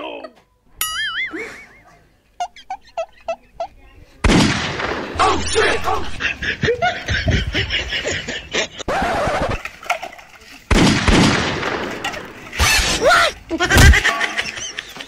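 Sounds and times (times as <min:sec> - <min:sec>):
men talking: 0:05.2 - 0:06.4.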